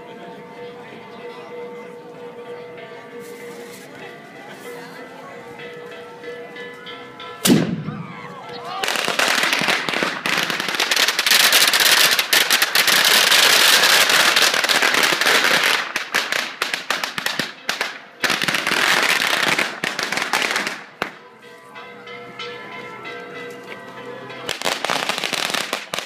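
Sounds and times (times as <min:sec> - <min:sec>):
firecrackers crackling: 0:08.6 - 0:21.2, 0:24.5 - 0:26.0.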